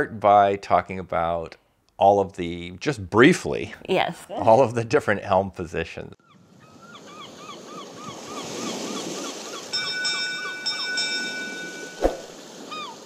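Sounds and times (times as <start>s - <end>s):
waves washing: 6.8s - 13.0s
high bell-like chime: 9.7s - 12.0s.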